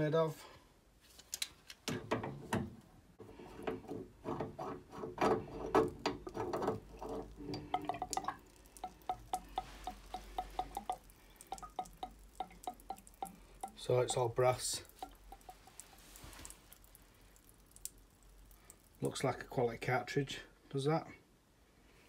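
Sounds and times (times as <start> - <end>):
metal valve clicking and scraping: 3.2 - 16.6.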